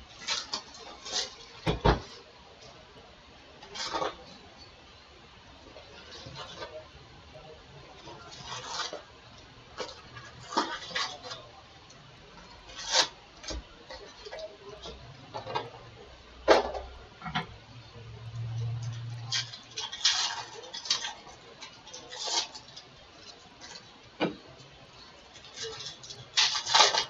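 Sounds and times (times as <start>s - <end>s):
foil packs crinkling: 0.0s - 2.3s, 19.2s - 24.0s, 25.2s - 27.0s.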